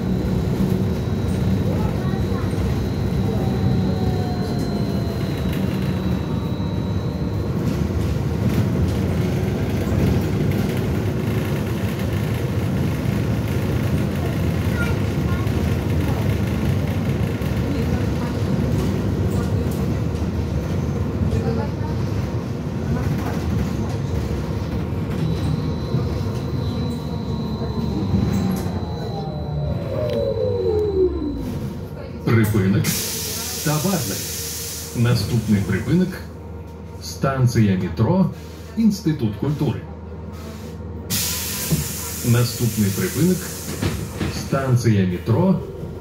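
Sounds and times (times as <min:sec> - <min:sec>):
trolleybus interior rumble: 0:00.0 - 0:46.0
low rumble of tyres: 0:22.9 - 0:32.6
faint high whine: 0:25.2 - 0:32.1.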